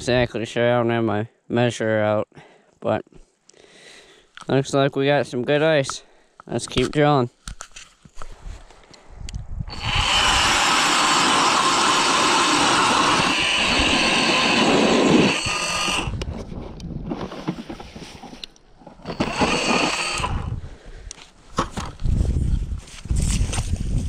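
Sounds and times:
ice auger drilling: 9.7s - 16.3s, 19.0s - 20.6s.

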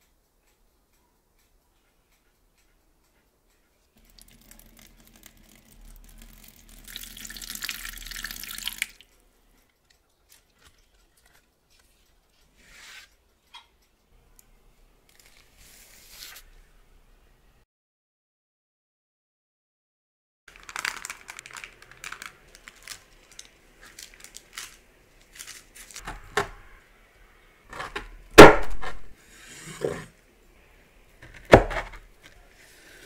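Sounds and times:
water pouring into metal tray: 4.0s - 9.0s
aluminium foil rustling: 20.5s - 26.3s.

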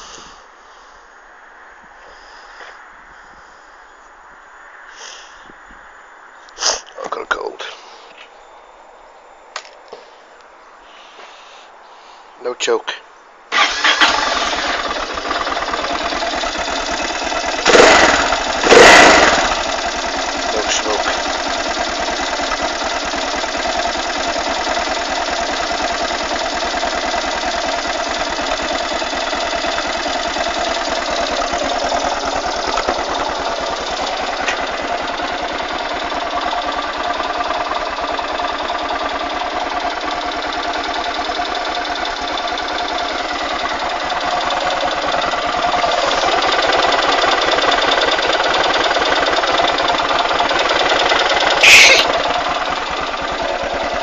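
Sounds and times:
motorcycle engine idling: 13.5s - 54.0s.

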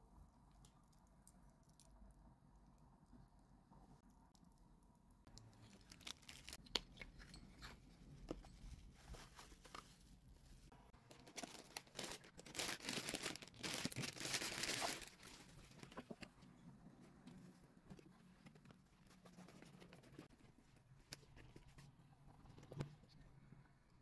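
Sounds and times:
plastic bag crinkling and tearing: 5.6s - 6.8s, 11.0s - 16.0s
plastic packaging handled: 5.6s - 7.0s, 11.0s - 16.3s.

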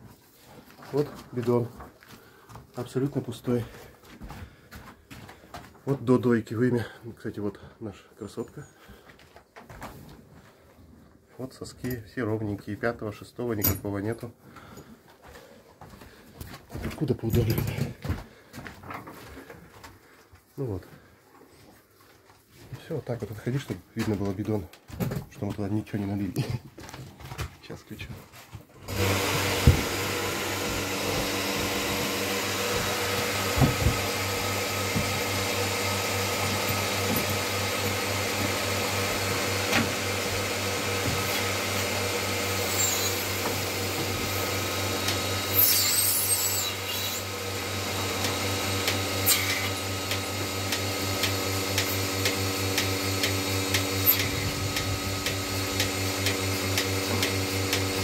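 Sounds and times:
milking machine vacuum pump running: 28.8s - 58.0s.

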